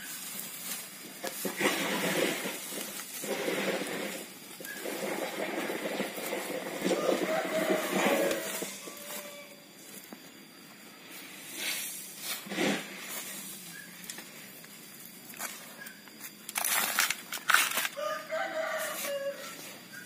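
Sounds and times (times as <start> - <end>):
hands scooping potting mix: 0.0 - 10.2, 11.0 - 20.0
rooster crowing: 4.9 - 9.8, 17.8 - 20.0.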